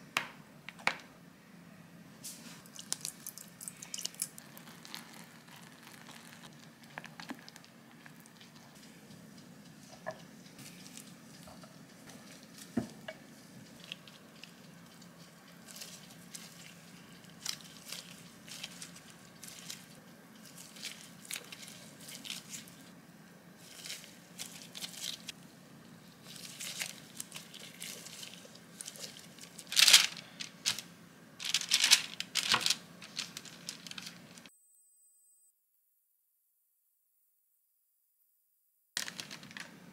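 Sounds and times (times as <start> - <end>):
plastic gloves and paper crinkling: 2.4 - 9.1, 10.6 - 23.0, 23.6 - 25.4, 26.1 - 34.5, 39.0 - 39.8.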